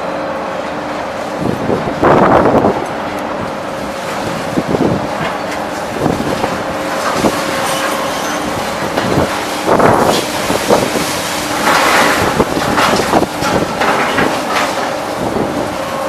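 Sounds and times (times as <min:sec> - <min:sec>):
shredding plant droning: 0:00.0 - 0:16.0
scrap metal crashing and clanking: 0:05.2 - 0:15.7.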